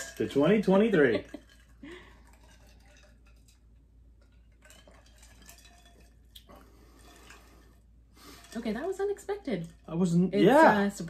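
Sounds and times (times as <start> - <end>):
ice clinking in glasses: 0.0 - 3.2, 4.6 - 7.5.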